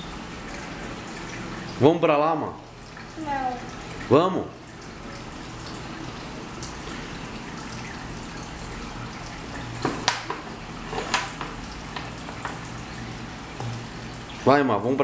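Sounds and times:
tap running into steel sink: 9.8 - 12.7, 13.6 - 14.2.

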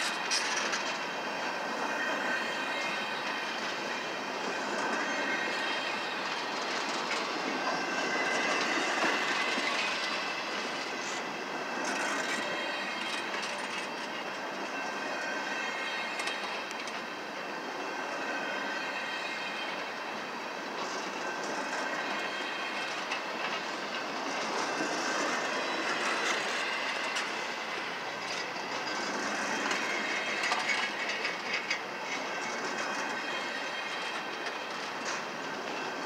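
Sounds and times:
freight train rolling past: 0.0 - 36.0
wheels clattering over rail joints: 21.4 - 36.0.

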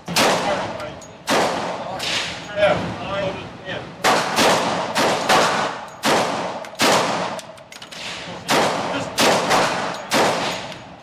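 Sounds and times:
pistol shots echoing indoors: 4.0 - 7.5, 8.4 - 10.7.

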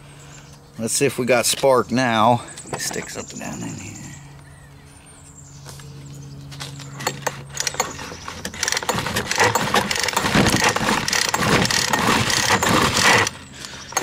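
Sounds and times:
engine cranking with starter cord: 7.0 - 14.0.

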